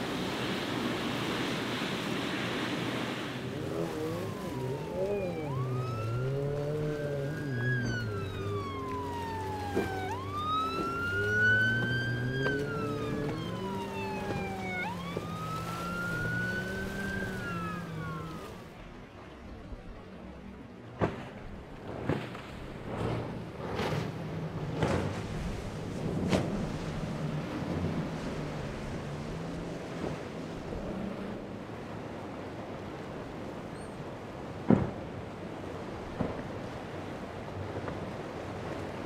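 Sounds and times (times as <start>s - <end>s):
wind and water noise: 0.0s - 39.0s
engine drone: 2.5s - 20.6s
siren wailing: 3.4s - 18.8s.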